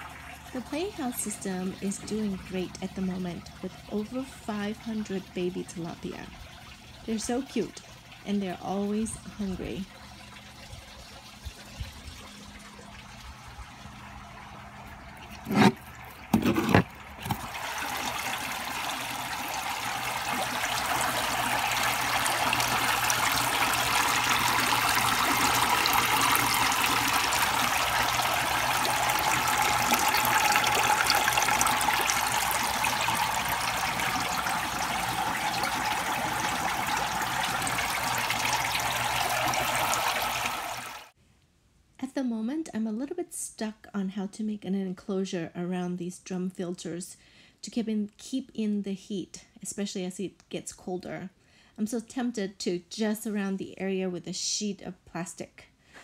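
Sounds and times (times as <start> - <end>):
water pouring and splashing: 0.0 - 41.2.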